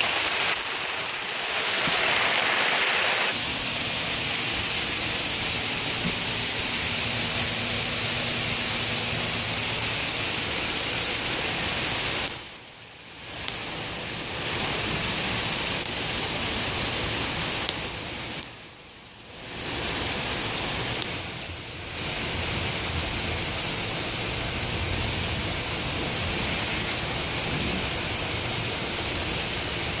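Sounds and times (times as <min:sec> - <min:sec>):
hailstones pelting pavement: 0:00.0 - 0:08.6, 0:19.4 - 0:30.0.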